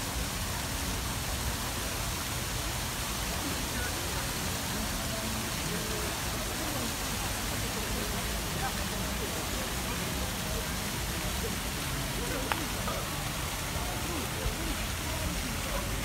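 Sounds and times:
faint distant voices: 0.0 - 16.0
steady rushing outdoor noise: 0.0 - 16.0.

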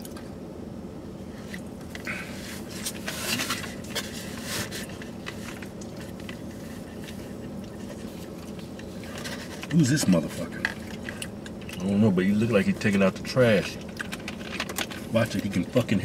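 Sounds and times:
low car cabin hum: 0.0 - 16.0
people chewing food: 1.4 - 12.0, 12.9 - 15.6
small clicks and rustles: 13.6 - 15.6.

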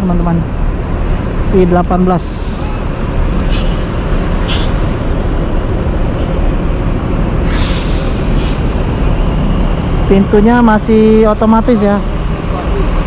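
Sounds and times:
bus diesel engine running: 0.0 - 13.0
air brakes hissing: 3.5 - 4.9, 7.4 - 8.7.

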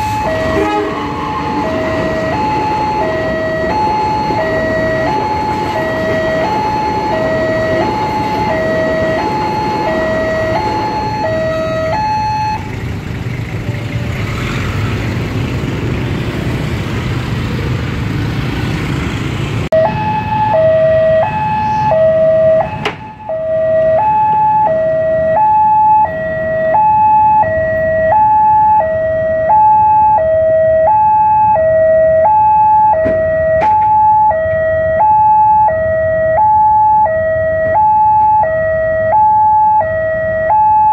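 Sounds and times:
low rumble of passing train: 0.0 - 11.9
level crossing two-tone alarm: 0.0 - 12.6, 19.7 - 40.9.

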